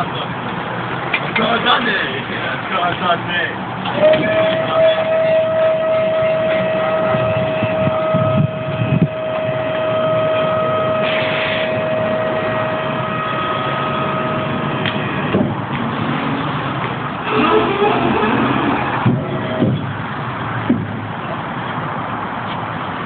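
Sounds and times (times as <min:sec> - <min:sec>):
hydraulic pump whine: 0:03.8 - 0:20.9
tail lift clunk: 0:16.8 - 0:21.0.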